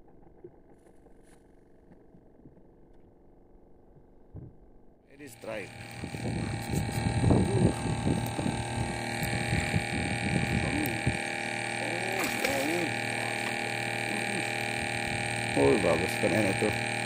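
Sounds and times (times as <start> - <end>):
steady hum of held tones: 1.3 - 17.0
muffled voices talking: 9.2 - 16.8.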